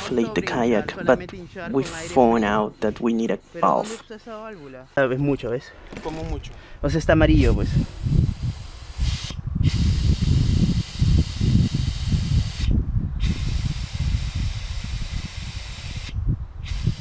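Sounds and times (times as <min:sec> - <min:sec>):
air hissing out of valve: 0:07.3 - 0:17.0.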